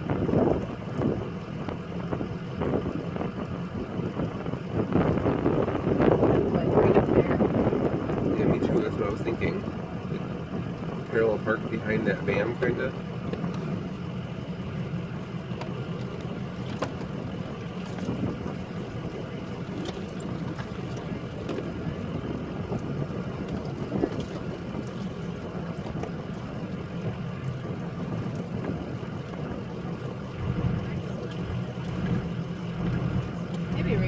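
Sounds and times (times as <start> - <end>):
bus engine and road rumble: 0.0 - 34.0
small rattles and knocks: 15.4 - 22.0.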